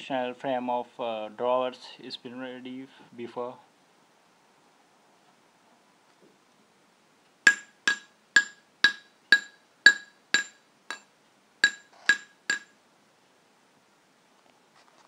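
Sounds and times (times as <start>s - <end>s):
hammer striking steel tube: 7.5s - 12.8s.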